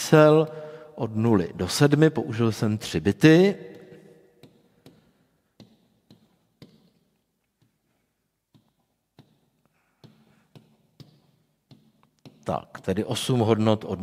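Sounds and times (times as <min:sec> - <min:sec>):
pen tapping on screen: 0:04.4 - 0:07.0, 0:08.5 - 0:12.5.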